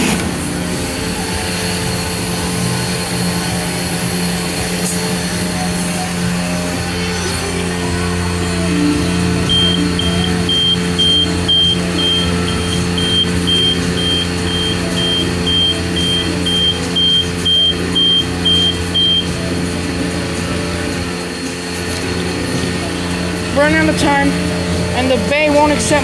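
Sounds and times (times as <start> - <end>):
machine hum: 0.0 - 26.0
control panel beeping: 9.5 - 19.4.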